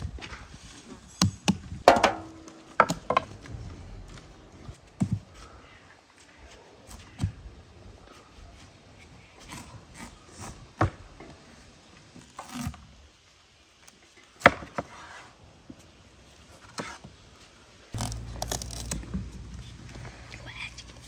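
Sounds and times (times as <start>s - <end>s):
low rumble: 3.2s - 4.6s, 18.0s - 21.0s
knives cutting watermelon rind: 18.0s - 21.0s.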